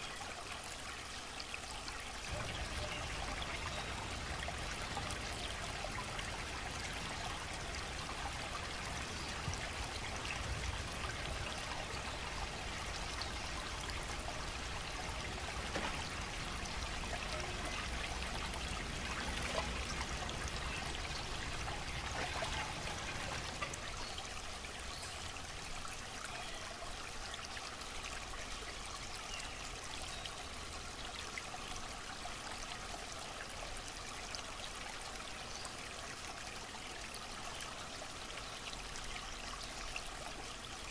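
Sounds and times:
faint ticks and splashes: 0:00.0 - 0:26.5
trickle of running water: 0:00.0 - 0:40.9.

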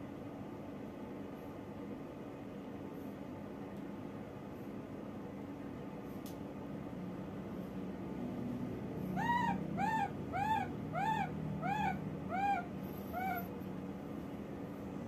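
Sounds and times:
baby macaque coo calls: 0:09.2 - 0:13.5.

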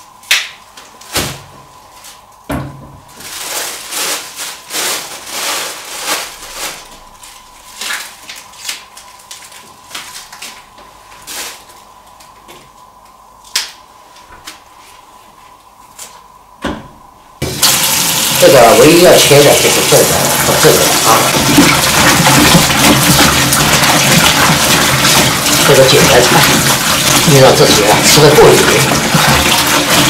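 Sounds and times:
plastic bags rustling: 0:03.0 - 0:12.3.

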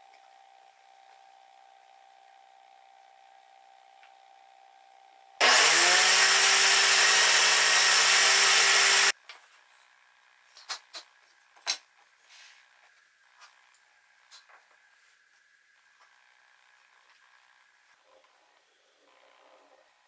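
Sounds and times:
table saw motor running: 0:05.4 - 0:09.1.

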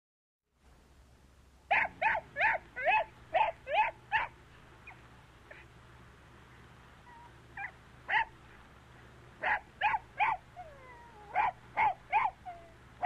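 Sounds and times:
puppy yipping: 0:01.7 - 0:05.7, 0:07.1 - 0:08.3, 0:09.4 - 0:12.8
puppy whimpering: 0:07.0 - 0:07.7, 0:10.6 - 0:12.7.

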